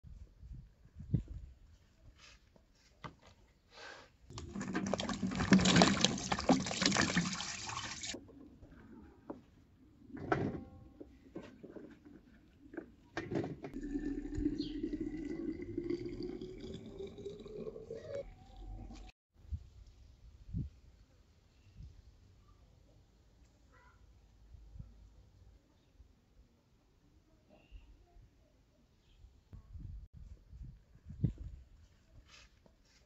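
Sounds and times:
liquid pouring into container: 4.3s - 8.2s, 13.8s - 19.1s
water running from tap: 4.3s - 8.2s.

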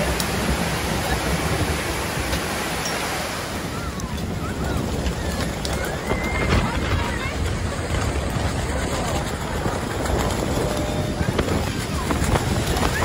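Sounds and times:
waterfall rushing: 0.0s - 7.9s
churning water: 0.0s - 13.0s
wind buffeting: 0.0s - 13.0s.

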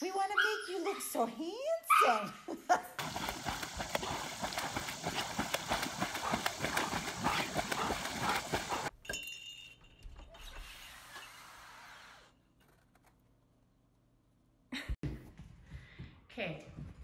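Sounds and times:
dog splashing in water: 3.0s - 8.9s.

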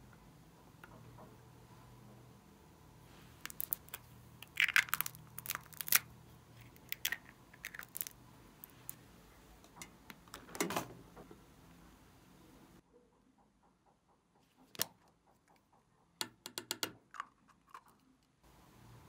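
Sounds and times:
plastic jar clicks and crackles: 3.4s - 9.0s.

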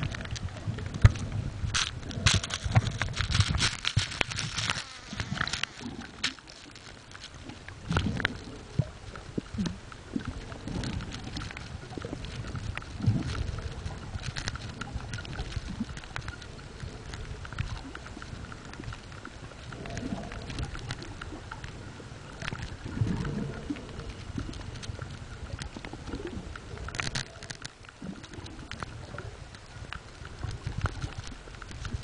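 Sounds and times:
underwater crackling clicks: 0.0s - 32.0s.

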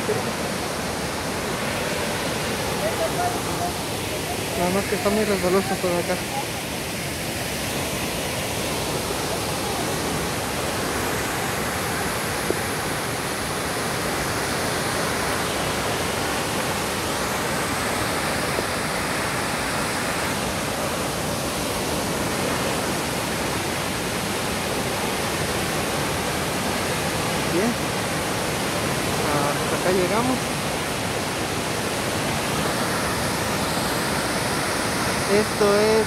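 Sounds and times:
waterfall rushing: 0.0s - 36.0s.

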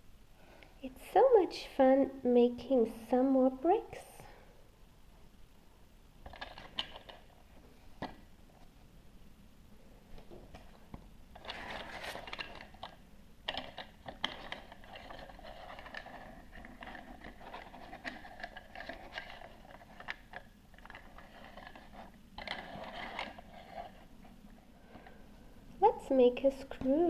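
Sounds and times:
small plastic clicks and knocks: 10.5s - 23.4s.

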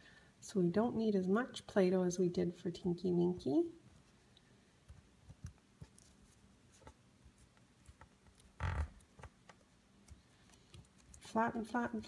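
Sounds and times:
fingers pressing modelling clay: 4.8s - 11.4s.

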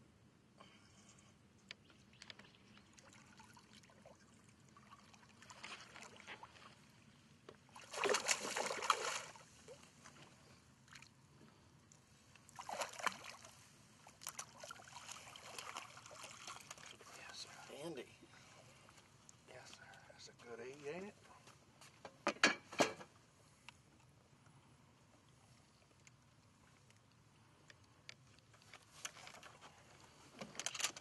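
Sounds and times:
fish thrashing and splashing: 7.8s - 9.4s, 14.3s - 17.0s.

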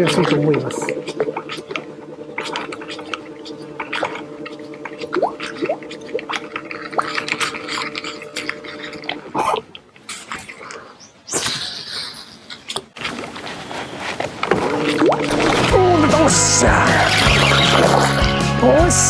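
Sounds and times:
light watery splashes: 0.0s - 11.0s
electric trolling motor humming: 0.0s - 12.2s, 12.9s - 19.0s.

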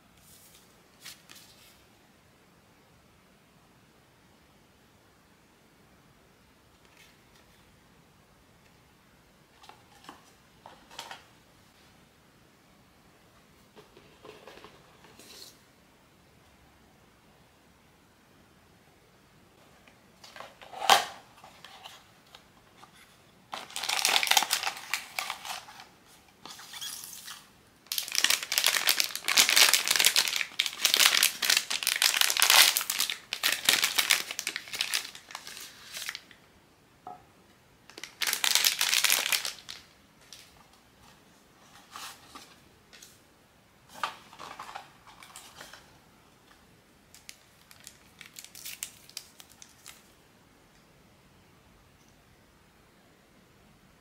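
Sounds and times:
packaging crinkling and tearing: 23.5s - 25.9s, 27.9s - 36.4s, 37.9s - 40.5s, 47.1s - 50.1s.

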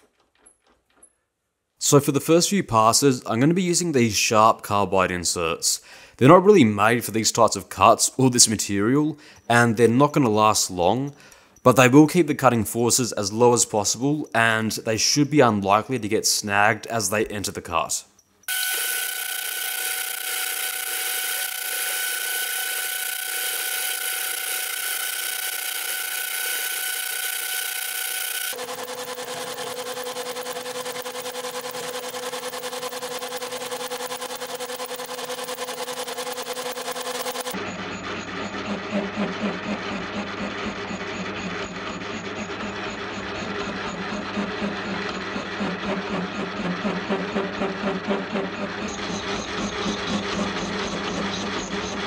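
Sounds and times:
metal lathe cutting steel: 18.5s - 52.0s.

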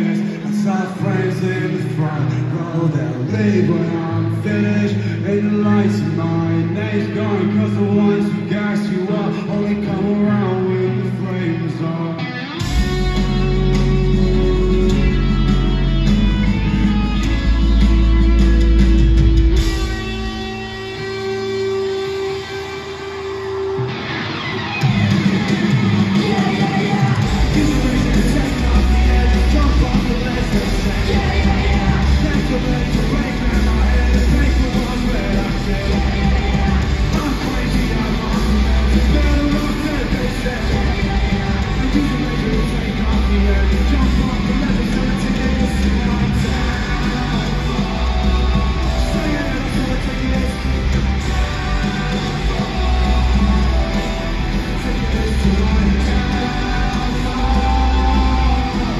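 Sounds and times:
live rock band music: 0.0s - 58.9s
heavy bass line: 12.6s - 22.8s, 24.8s - 58.9s.

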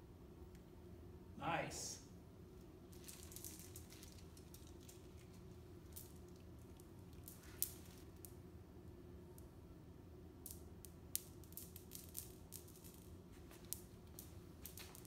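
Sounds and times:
low room hum: 0.0s - 15.0s
marbles clicking together: 3.0s - 8.4s, 10.4s - 15.0s.

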